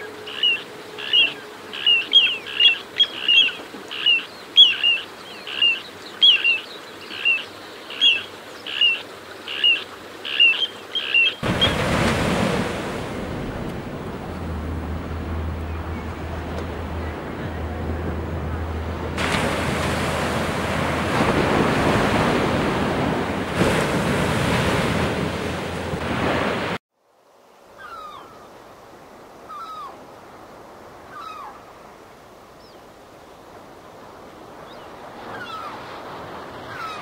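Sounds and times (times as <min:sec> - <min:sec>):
wind: 0:00.0 - 0:37.0
surf breaking: 0:11.4 - 0:26.8.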